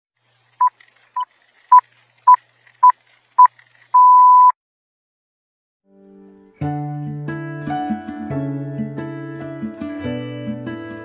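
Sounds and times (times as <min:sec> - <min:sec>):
short high electronic beeps: 0:04.0 - 0:04.5
longer electronic beep: 0:04.0 - 0:04.6.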